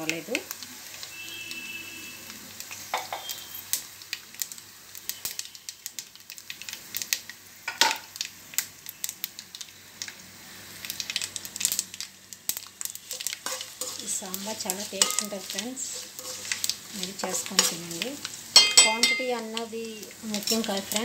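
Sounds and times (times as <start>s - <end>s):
spices sizzling in hot oil: 0.0s - 21.0s.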